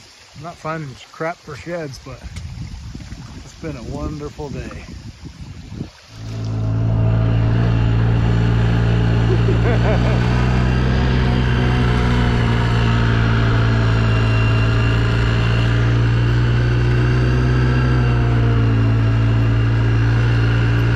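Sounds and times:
atv engine droning: 0:06.1 - 0:20.9.

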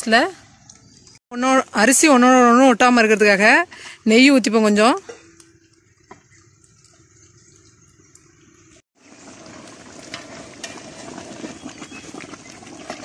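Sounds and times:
rice bubbling and crackling in pot: 0:04.4 - 0:13.0.

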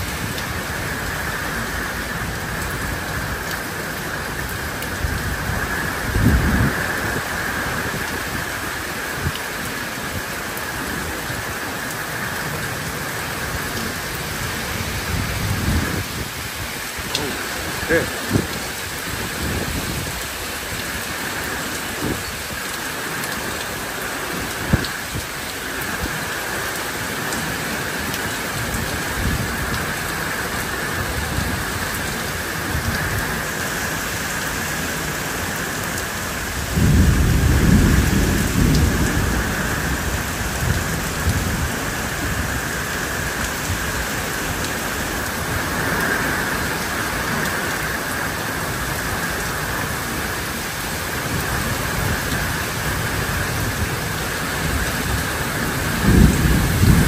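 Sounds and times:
steady rain falling: 0:00.0 - 0:57.0
thunder rumbling: 0:36.5 - 0:44.2, 0:51.2 - 0:57.0.

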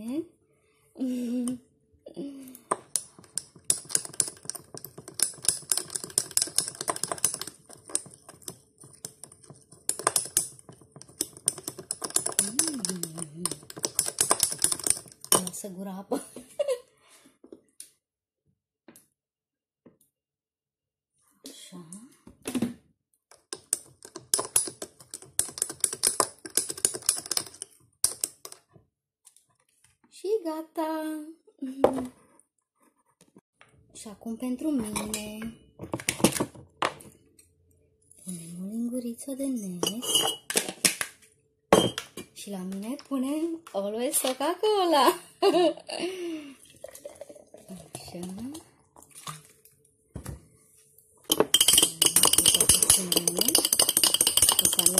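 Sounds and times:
ice cubes clinking in glass: 0:51.3 - 0:54.9.

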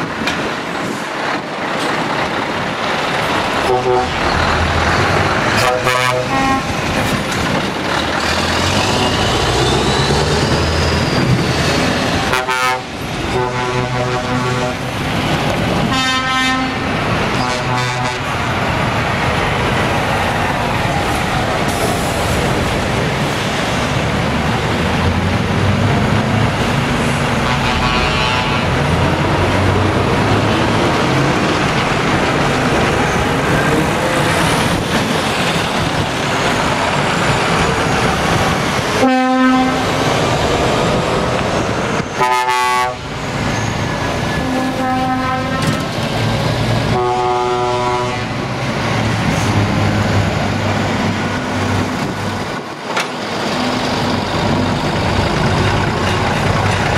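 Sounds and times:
truck diesel engines running: 0:00.0 - 0:56.9
truck horn blasts: 0:03.6 - 0:04.4, 0:05.6 - 0:06.8, 0:12.3 - 0:15.0, 0:15.8 - 0:18.4, 0:27.4 - 0:28.8, 0:39.0 - 0:40.0, 0:42.2 - 0:43.0, 0:44.4 - 0:45.9, 0:46.9 - 0:48.3.

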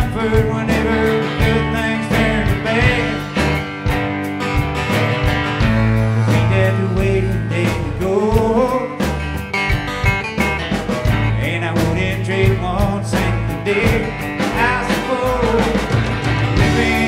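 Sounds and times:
bending lead melody: 0:00.0 - 0:17.0
live country-rock band playing: 0:00.0 - 0:17.0.

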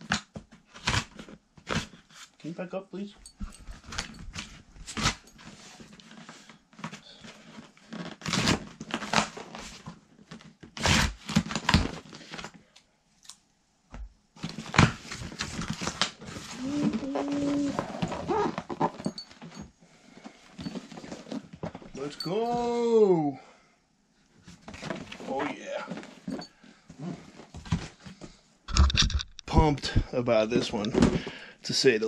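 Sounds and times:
packing tape cut and ripped: 0:00.0 - 0:02.1, 0:04.8 - 0:05.2, 0:07.8 - 0:12.5, 0:14.4 - 0:19.0
packing material rustling: 0:14.4 - 0:19.4.

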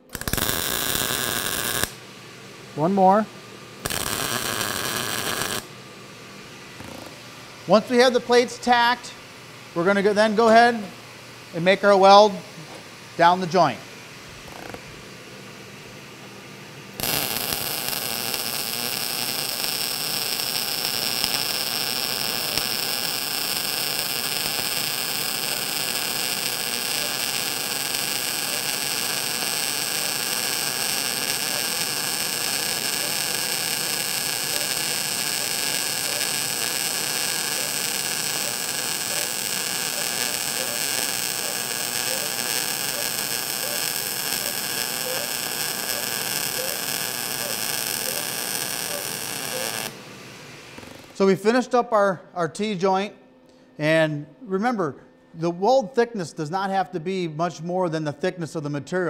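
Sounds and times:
welding arc crackling: 0:00.0 - 0:02.0, 0:03.8 - 0:05.7, 0:16.9 - 0:50.0.

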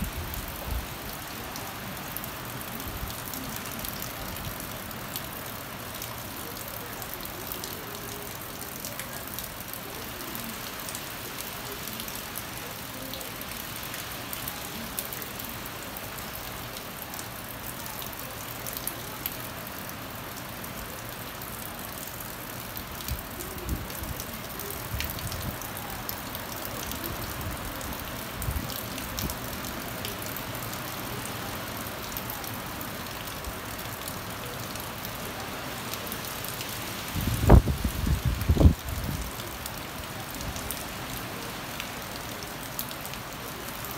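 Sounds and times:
rain falling on foliage: 0:00.0 - 0:43.9.

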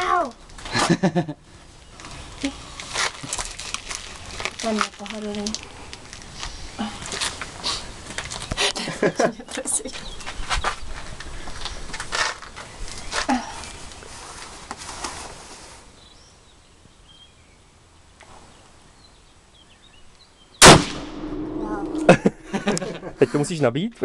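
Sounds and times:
rifle shot: 0:20.6 - 0:22.4.

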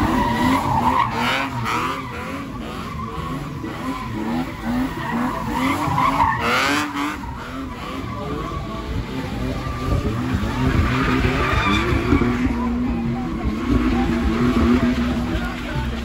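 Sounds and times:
tyres squealing: 0:00.0 - 0:08.8
car engine revving high: 0:00.0 - 0:16.0.

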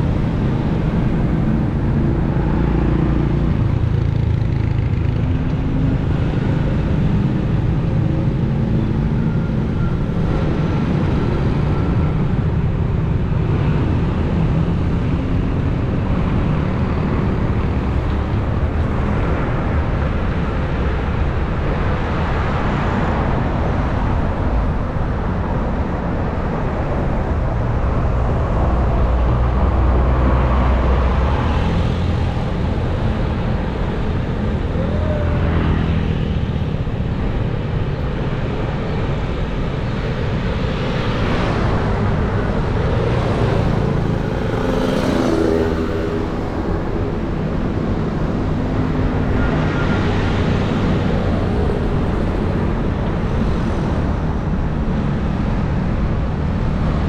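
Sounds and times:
motorcycles and cars passing: 0:00.0 - 0:57.0
wind rumble on microphone: 0:00.0 - 0:57.0.

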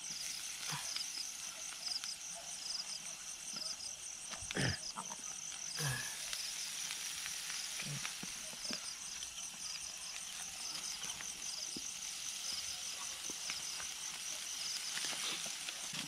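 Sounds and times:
hotdogs sizzling on charcoal grill: 0:00.0 - 0:16.0
insects trilling: 0:00.0 - 0:16.0.

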